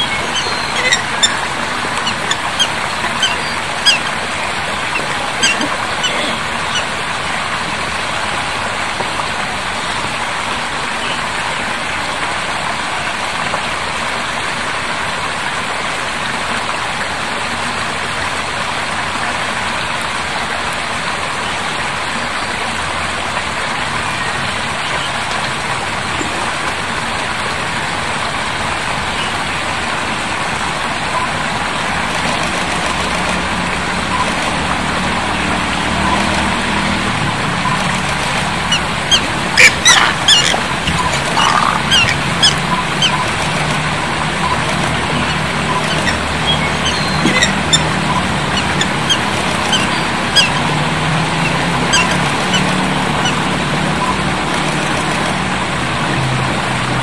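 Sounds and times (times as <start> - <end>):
loud steady rushing noise: 0.0 - 13.5, 24.6 - 57.0.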